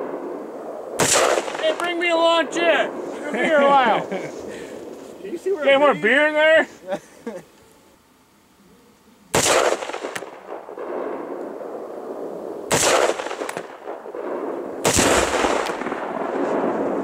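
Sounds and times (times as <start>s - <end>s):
exploding target detonating: 0.0s - 3.1s, 9.3s - 17.0s
gunshots with rolling echo: 0.0s - 3.1s, 9.4s - 17.0s.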